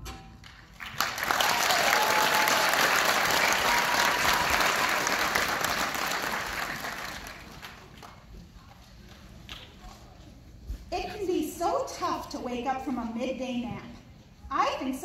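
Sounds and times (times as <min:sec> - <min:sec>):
audience applauding: 0:00.4 - 0:08.3.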